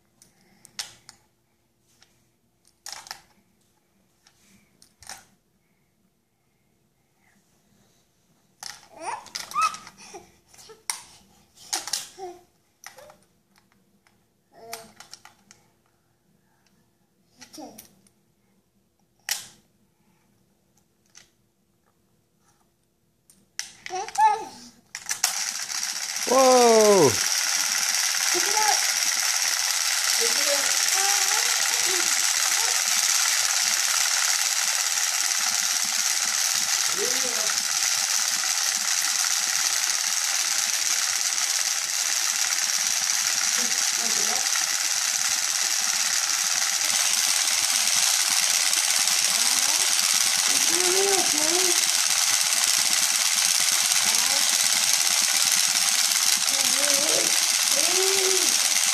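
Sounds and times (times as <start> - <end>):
toy motor whirring: 2.8 - 3.3, 4.2 - 5.3, 8.6 - 13.2, 14.6 - 15.5, 23.6 - 58.9
toddler babbling: 8.9 - 10.8, 23.9 - 24.6, 26.7 - 27.2.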